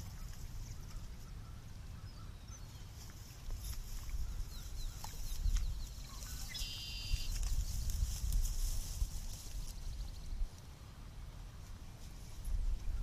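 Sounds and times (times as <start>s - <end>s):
wind rumbling on microphone: 2.2s - 13.0s
faint bird chirps: 4.1s - 7.5s
bird trill: 6.1s - 7.4s.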